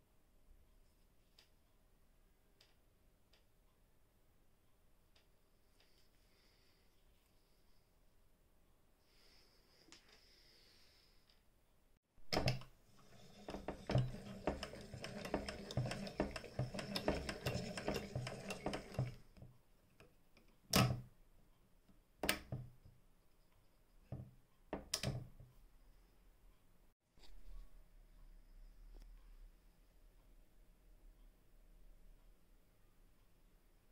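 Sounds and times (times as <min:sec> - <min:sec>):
sewing machine mechanism clattering: 0:12.3 - 0:19.5.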